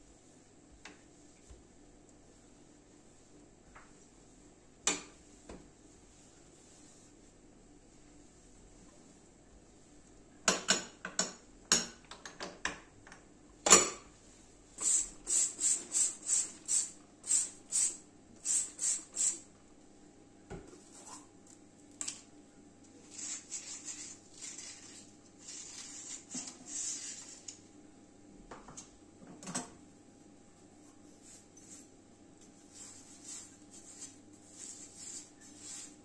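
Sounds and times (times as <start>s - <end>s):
soft scrubbing: 1.1s - 4.6s, 5.2s - 10.0s, 23.0s - 27.6s, 30.5s - 36.0s.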